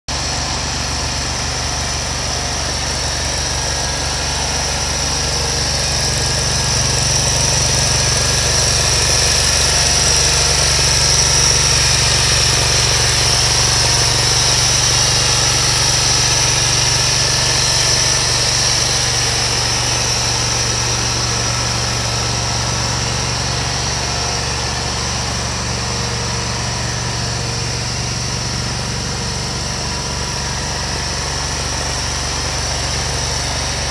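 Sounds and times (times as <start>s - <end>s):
mower engine idling: 0.1s - 33.9s.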